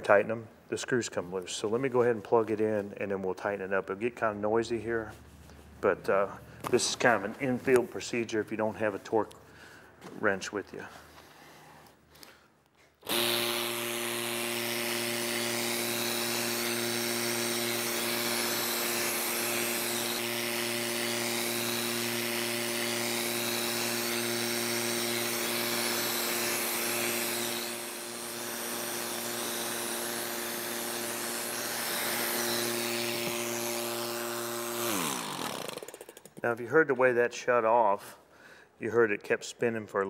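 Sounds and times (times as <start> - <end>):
electric motor hum: 13.0 - 36.0.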